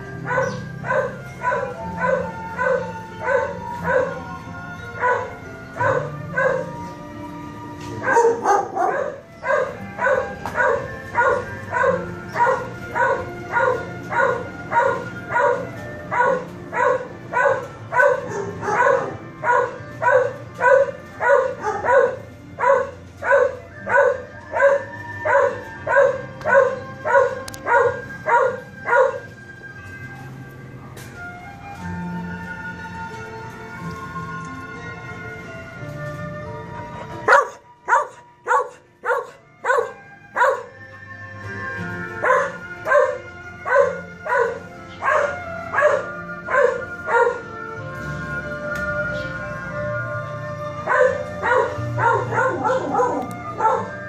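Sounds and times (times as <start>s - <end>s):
dog barking: 0.2s - 4.2s, 5.0s - 6.8s, 8.0s - 29.3s, 37.2s - 40.8s, 42.2s - 47.5s, 50.8s - 54.0s.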